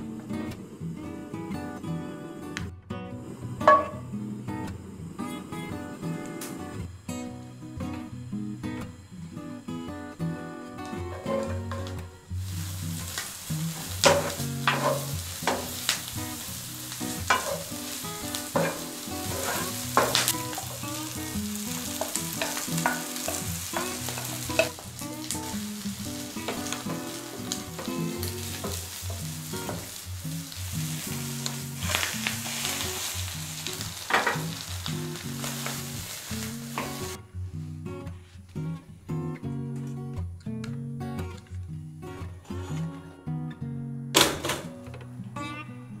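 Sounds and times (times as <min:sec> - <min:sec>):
food sizzling in a frying pan: 0:03.2 - 0:37.2
wooden spatula knocking on pan: 0:03.7 - 0:04.0, 0:17.3 - 0:17.6, 0:18.6 - 0:20.7.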